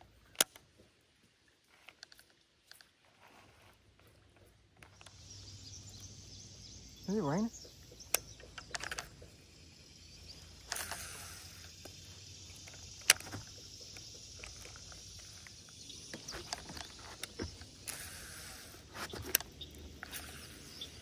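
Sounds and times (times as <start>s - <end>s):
faint high hiss: 5.0s - 21.0s
sharp click of reel: 10.5s - 12.0s, 12.6s - 21.0s.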